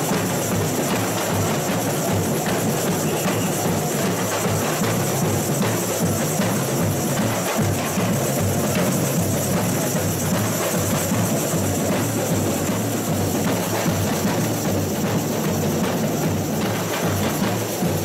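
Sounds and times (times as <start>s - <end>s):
samba percussion band: 0.0s - 18.0s
surdo bass drum beat: 0.0s - 18.0s.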